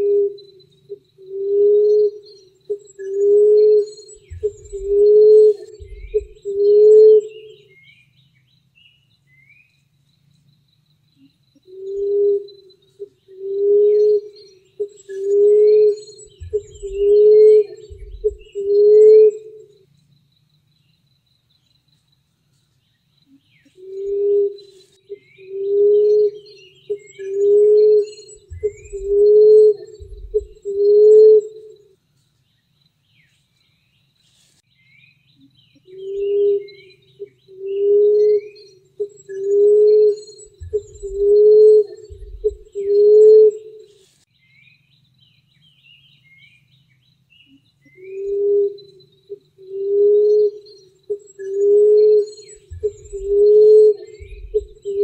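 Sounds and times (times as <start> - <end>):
dove cooing: 0.0 - 7.6, 11.7 - 19.6, 23.8 - 31.7, 35.9 - 43.8, 48.0 - 48.9, 49.6 - 55.0
small birds chirping faintly: 0.0 - 55.0.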